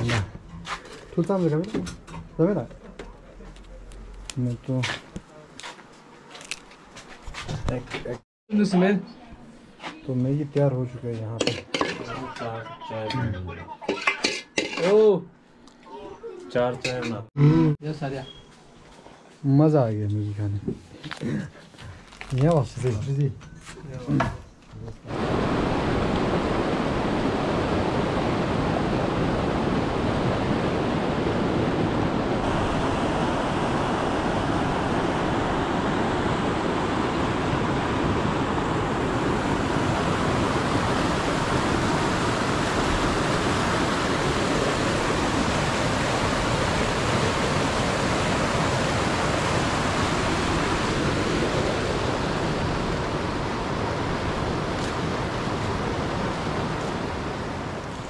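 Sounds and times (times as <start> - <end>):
river rushing over boulders: 25.1 - 58.0.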